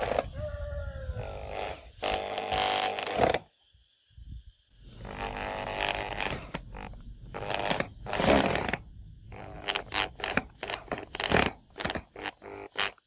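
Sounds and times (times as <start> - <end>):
electric drill driving screw into steel: 1.3 - 3.4, 5.0 - 13.0.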